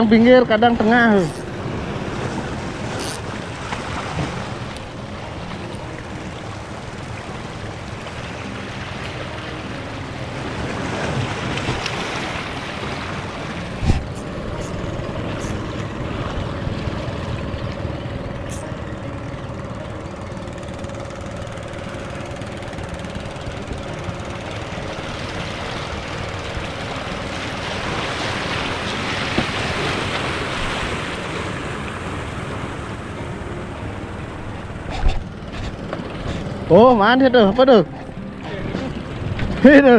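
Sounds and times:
boat motor humming: 0.0 - 39.9
waves washing against rocks: 25.3 - 32.7.

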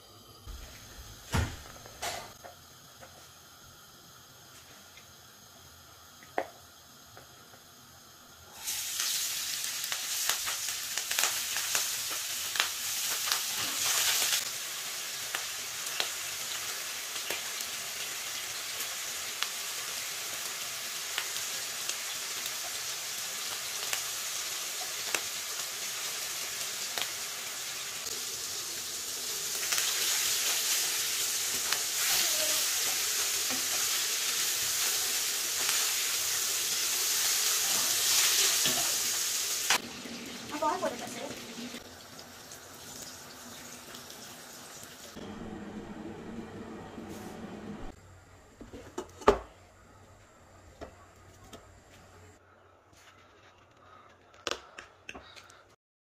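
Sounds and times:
fish sizzling in hot oil: 2.6 - 45.2.

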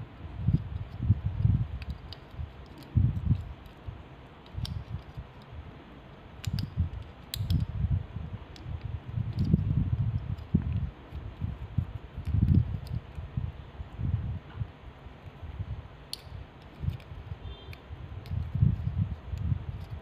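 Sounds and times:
low rumbling handling noise: 0.0 - 20.0
light sharp clicks: 4.4 - 5.6, 6.4 - 7.8, 16.1 - 20.0.

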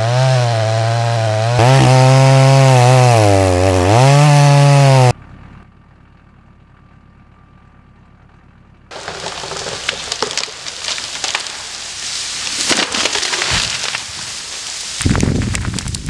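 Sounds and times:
branches cracking and snapping: 8.9 - 16.0
snow and debris showering down: 8.9 - 16.0
tree trunk thudding on ground: 8.9 - 16.0.

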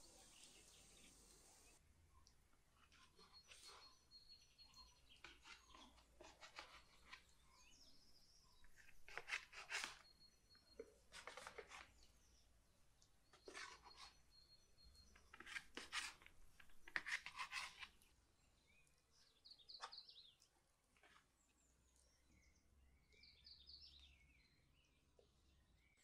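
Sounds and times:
birds chirping: 0.0 - 1.8
dough scraping on metal tray: 13.4 - 14.2, 15.3 - 16.3.

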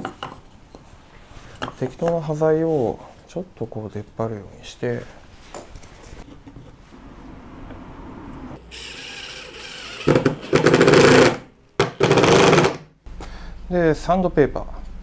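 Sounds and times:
impact driver hammering: 9.9 - 12.9.

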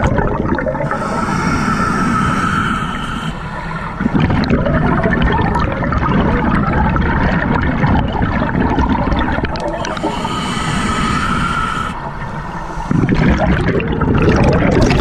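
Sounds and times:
underwater bubbles gurgling: 0.0 - 15.0.

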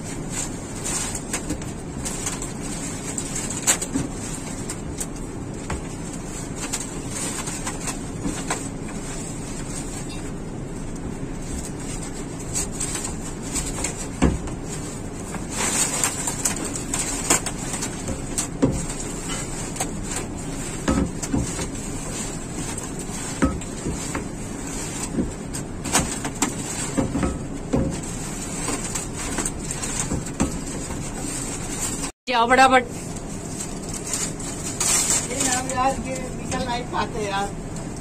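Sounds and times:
steady background rumble: 0.0 - 38.0
pipes knocking and clattering: 11.7 - 32.1.

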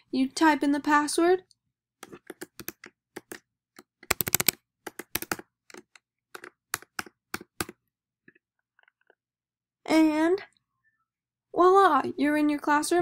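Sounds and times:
keyboard keystrokes: 2.0 - 7.8.

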